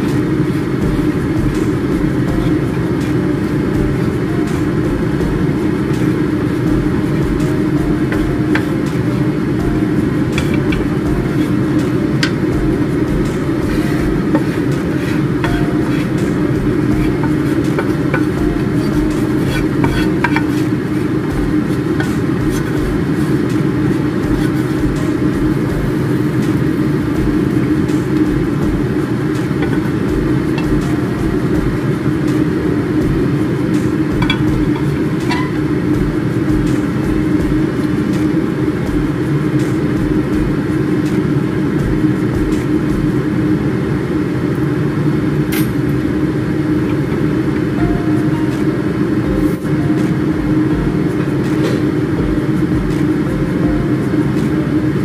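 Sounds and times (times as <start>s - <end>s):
extractor fan running: 0.0s - 55.0s
spatula scraping frying pan: 13.5s - 25.3s.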